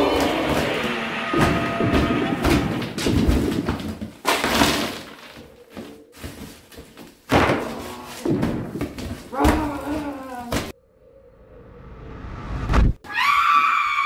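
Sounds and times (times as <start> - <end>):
gingerbread houses smashed underfoot: 0.0 - 10.7.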